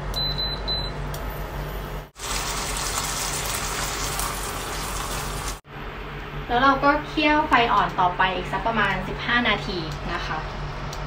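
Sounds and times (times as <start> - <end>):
food sizzling in a frying pan: 2.2 - 5.6.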